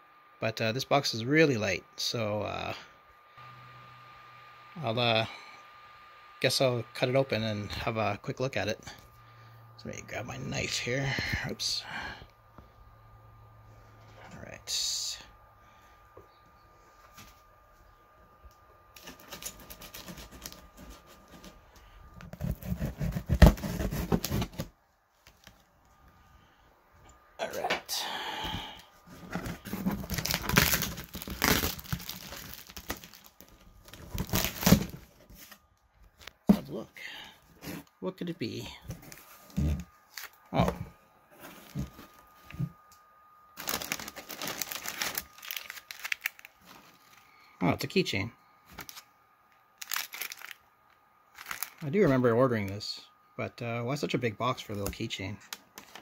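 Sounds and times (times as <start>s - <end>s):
packing paper crinkling: 18.9s - 21.6s, 29.1s - 35.6s, 43.6s - 47.4s, 48.7s - 49.1s, 49.8s - 50.7s, 51.3s - 52.2s
knife slitting packing tape: 19.1s - 20.6s.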